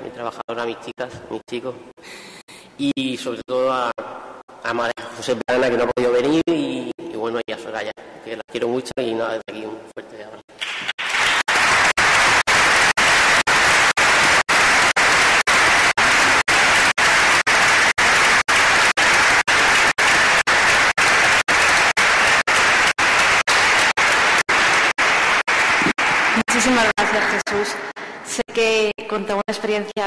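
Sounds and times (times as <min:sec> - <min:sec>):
audience applauding: 0:10.5 - 0:27.8.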